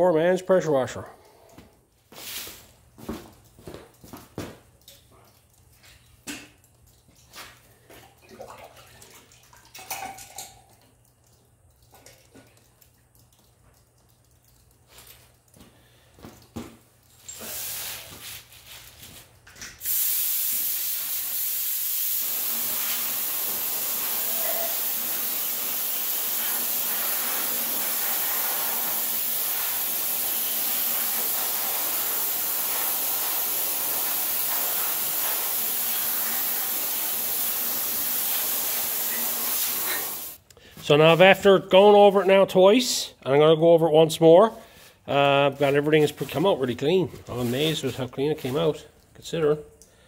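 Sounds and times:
spray gun hissing: 19.8 - 40.4.

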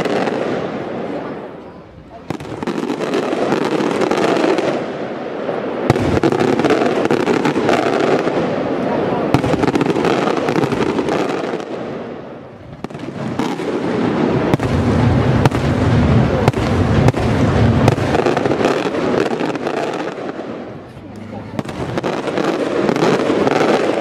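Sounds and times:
fireworks rumble and crackle: 0.0 - 24.0
sharp firework bangs: 2.2 - 20.9, 21.5 - 24.0.

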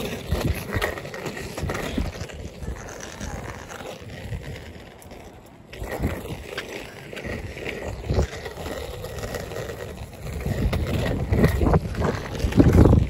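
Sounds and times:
skateboard wheels rolling on asphalt: 0.0 - 13.0.

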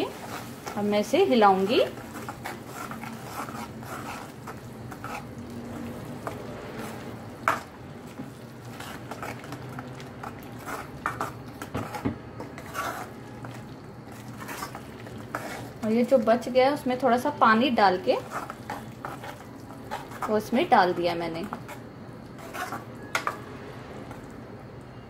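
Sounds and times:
metal spoon scraping a pan: 0.0 - 5.4, 8.7 - 15.8, 18.1 - 23.5.

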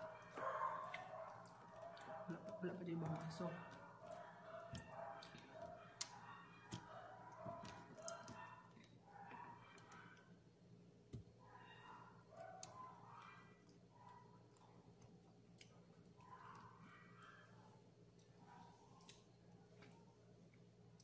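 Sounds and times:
person chewing: 14.4 - 16.6.

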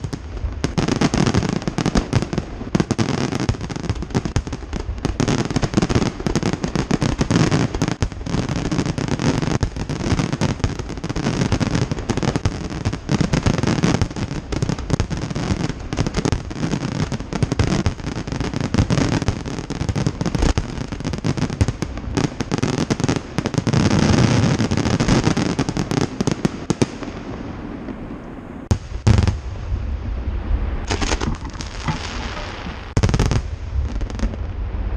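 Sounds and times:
fireworks crackling: 0.0 - 34.9
loud firework bangs: 28.7 - 34.9
firework shell bursts: 30.9 - 33.0.

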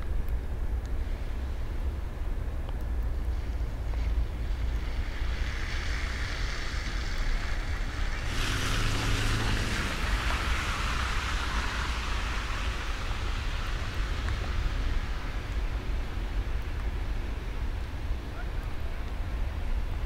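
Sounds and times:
steady low rumble: 0.0 - 20.0
hiss: 3.3 - 16.8.

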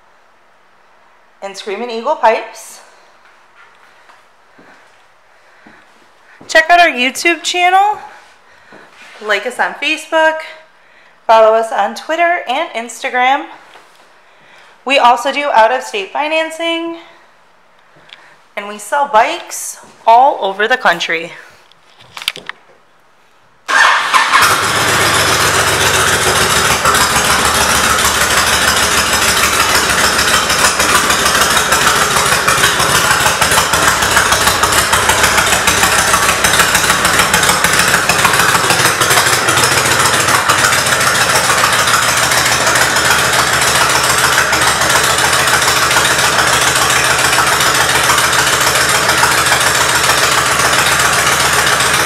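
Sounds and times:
motorcycle engine starting and idling: 23.7 - 52.0.

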